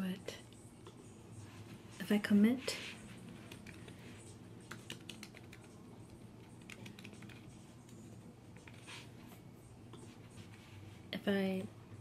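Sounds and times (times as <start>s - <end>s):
typing on computer keyboard: 4.6s - 5.8s, 6.5s - 7.5s.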